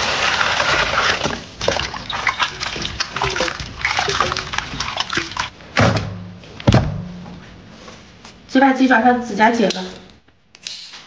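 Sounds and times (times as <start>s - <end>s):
water sloshing and splashing: 0.0s - 5.6s.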